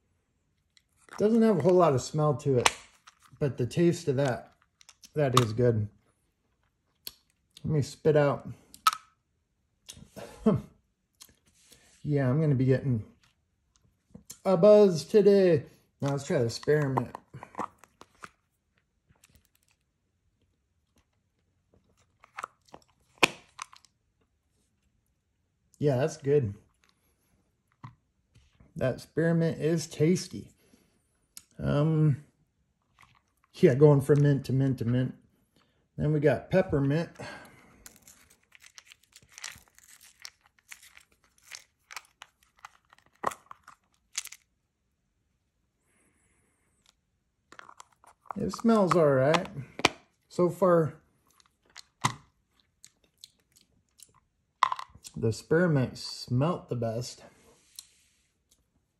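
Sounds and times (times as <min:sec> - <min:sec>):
plastic container crinkles and clicks: 0:21.8 - 0:23.9, 0:37.8 - 0:44.5, 0:47.5 - 0:50.0, 0:51.2 - 0:55.2
container clicks: 0:47.5 - 0:50.0.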